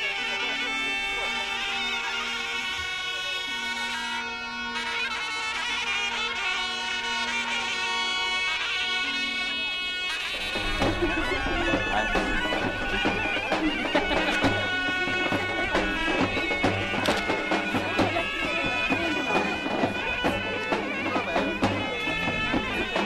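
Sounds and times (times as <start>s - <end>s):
reedy wind instrument melody: 0.0s - 23.0s
drum strokes: 10.3s - 23.0s.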